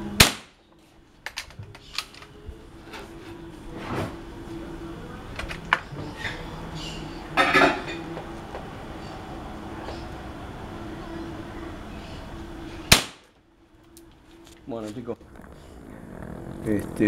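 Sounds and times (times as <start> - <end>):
air rifle crack: 0.2 - 0.6, 12.9 - 13.3.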